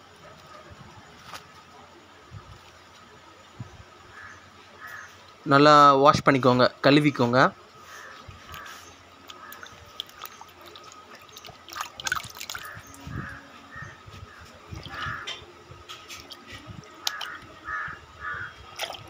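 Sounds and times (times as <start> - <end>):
bird calls: 4.1 - 5.2, 7.8 - 15.5, 16.1 - 18.6
water sloshing in a bucket: 7.9 - 19.0.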